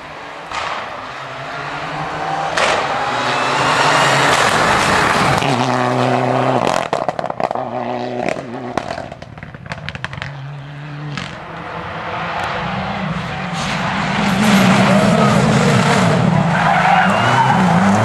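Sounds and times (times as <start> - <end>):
rally car engine at full throttle: 0.0 - 18.0
engine pops and cracks: 0.5 - 0.9, 8.2 - 10.3.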